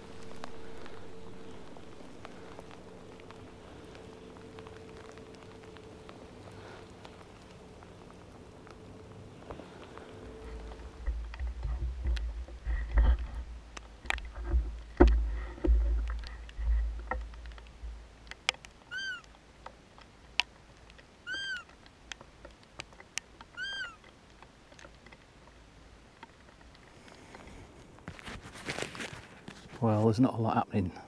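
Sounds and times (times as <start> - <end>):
raindrops ticking on microphone: 0.0 - 31.0
high mewing calls: 18.9 - 19.3, 21.2 - 21.7, 23.5 - 24.1.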